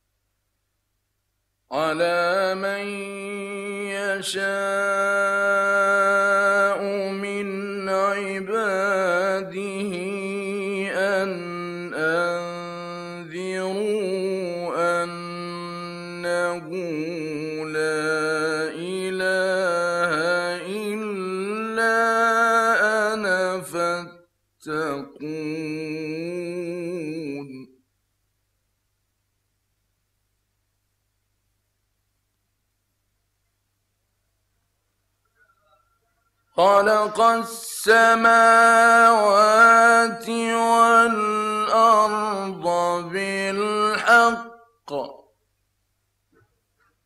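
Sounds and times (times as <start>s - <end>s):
man chanting recitation: 1.7s - 27.7s, 36.5s - 45.3s.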